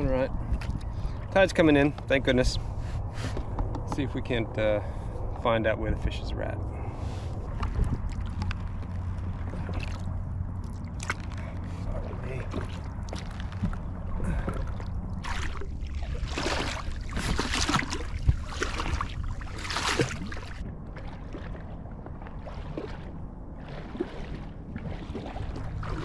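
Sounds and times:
water lapping against hull: 0.0 - 5.4, 6.5 - 26.0
kayak paddle splashing: 7.0 - 26.0.

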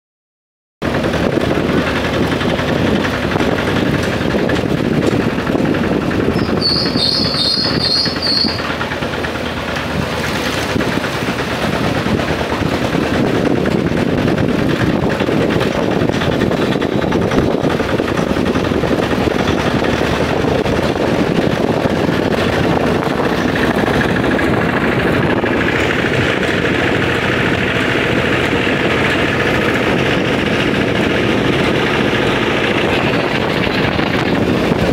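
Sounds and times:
road noise: 0.8 - 34.9
van engine running: 0.8 - 34.9
short high-pitched trill: 6.4 - 8.7.

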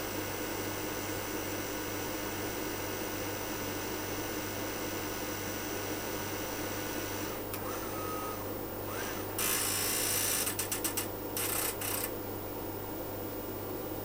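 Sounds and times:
mains hum: 0.0 - 14.0
tape mechanism whir: 7.2 - 12.1.

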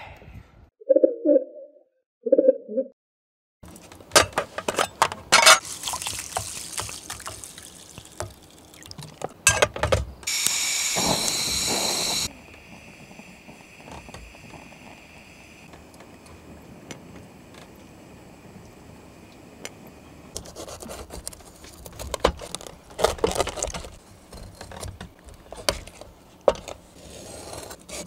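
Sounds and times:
metal mess tin clattering: 4.1 - 5.7
gas burner hissing: 10.2 - 20.4.

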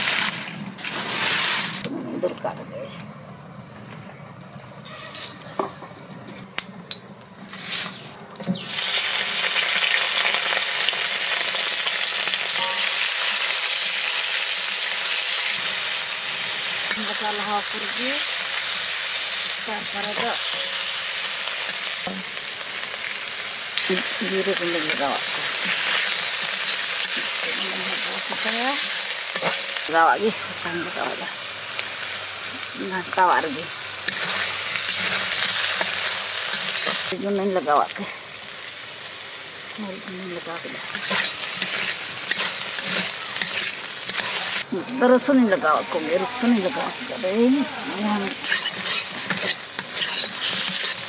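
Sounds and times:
oil crackling: 0.0 - 3.1, 3.8 - 51.0
fish frying in hot oil: 6.6 - 51.0
metal spatula stirring: 18.8 - 22.3, 24.9 - 29.9, 34.0 - 37.1, 40.8 - 44.7, 48.0 - 51.0.

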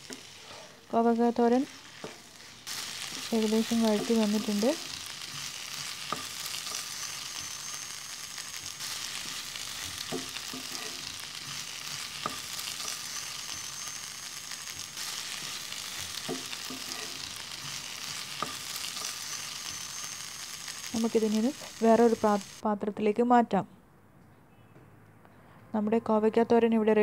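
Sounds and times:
wooden spatula scraping pan: 0.0 - 0.9, 1.6 - 4.6, 9.1 - 13.6, 15.2 - 19.3
vegetables sizzling in oil: 0.0 - 22.6.

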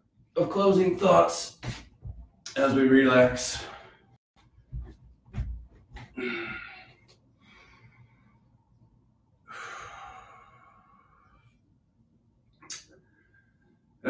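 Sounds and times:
soft bumps: 4.6 - 6.2
person sighing: 6.2 - 7.0
person breathing out: 6.2 - 7.8.

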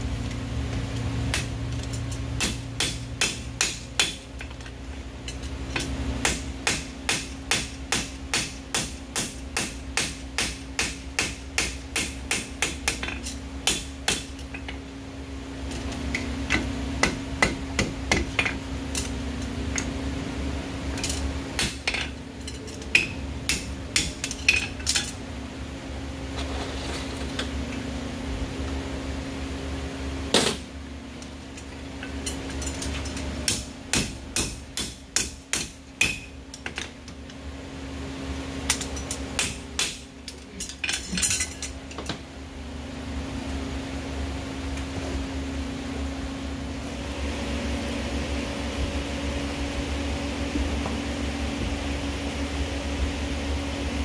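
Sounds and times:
steady hum: 0.0 - 54.0
hammer striking horseshoe on anvil: 1.3 - 4.6, 5.3 - 14.8, 16.1 - 19.2, 21.0 - 25.2, 33.4 - 36.9, 38.7 - 42.2.

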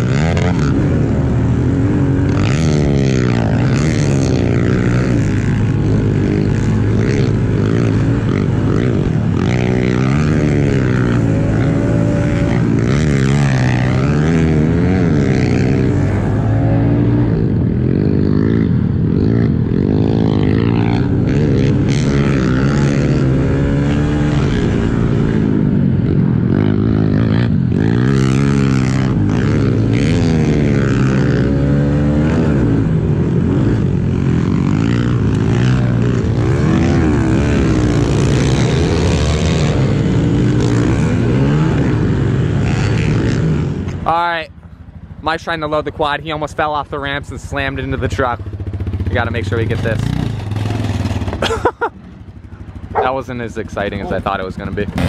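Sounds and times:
dirt bike engine revving: 0.0 - 44.1, 45.3 - 55.0.

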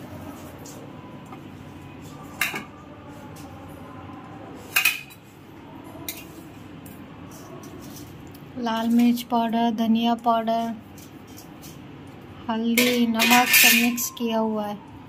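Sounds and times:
steel plate clinking on steel bowl: 12.8 - 14.1.

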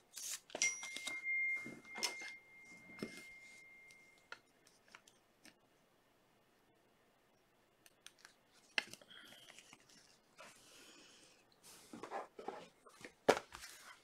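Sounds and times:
thin high-pitched tone: 0.6 - 4.3.

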